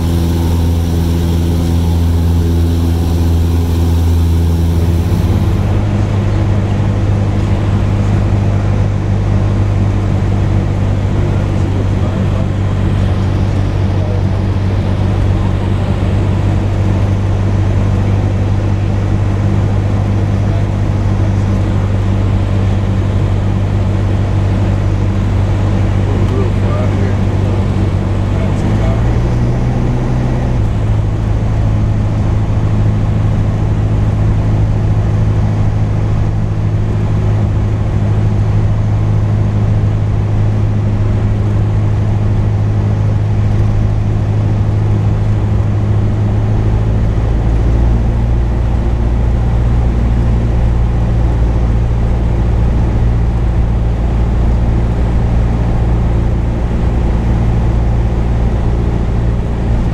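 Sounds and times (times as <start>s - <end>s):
propeller plane engine droning: 0.0s - 59.9s.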